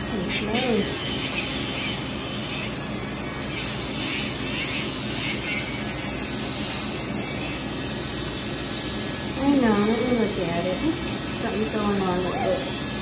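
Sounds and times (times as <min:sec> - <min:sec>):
high-pitched grinding on nails: 0:00.0 - 0:07.8
nail grinder humming: 0:00.0 - 0:08.0.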